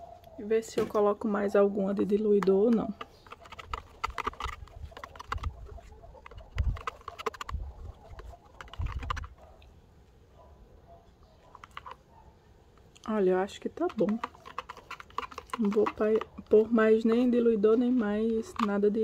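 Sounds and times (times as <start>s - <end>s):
spoon scraping plastic bowl: 2.0s - 9.5s, 11.5s - 12.0s, 13.6s - 19.0s.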